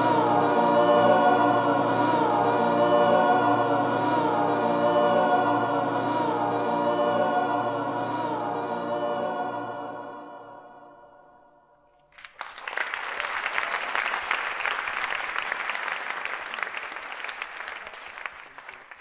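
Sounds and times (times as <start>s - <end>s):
audience applause: 12.1s - 19.0s.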